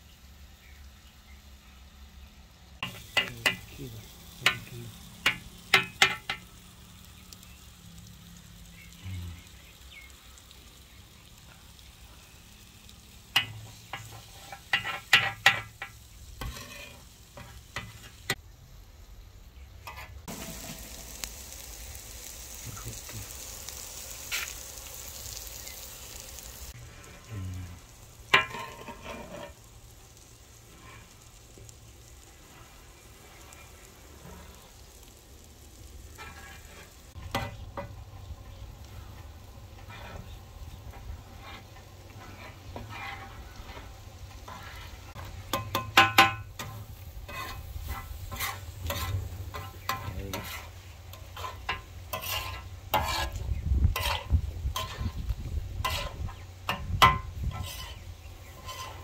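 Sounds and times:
eggs sizzling on a griddle: 0.0s - 59.0s
metal utensil clicking on griddle: 2.8s - 3.7s, 4.4s - 6.5s.

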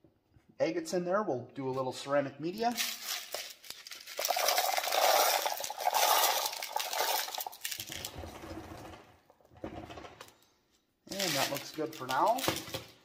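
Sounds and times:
ceramic pieces clattering: 2.8s - 7.9s.

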